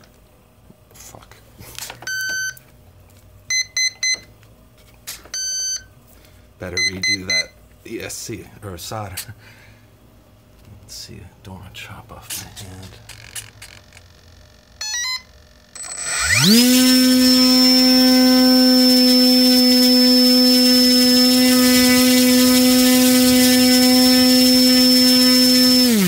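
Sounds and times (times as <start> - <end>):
rising electronic beeps: 14.8 - 20.9
electric motor propeller whine: 15.8 - 26.0.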